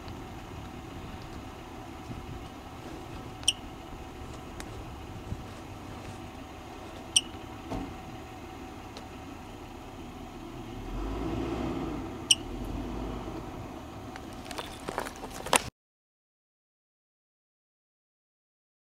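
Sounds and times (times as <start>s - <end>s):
low rumble: 0.0s - 15.5s
marmot chirping: 2.1s - 7.5s, 12.2s - 12.6s.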